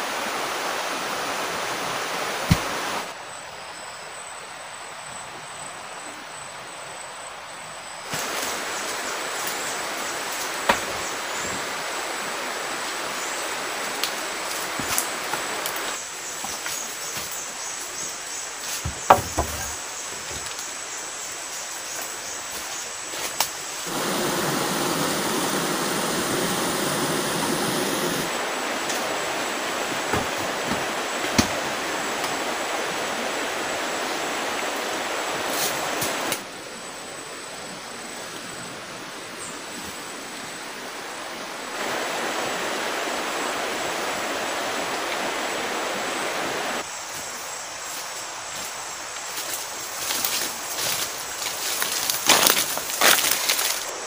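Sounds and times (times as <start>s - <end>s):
sharp knocks: 18.8s - 20.5s.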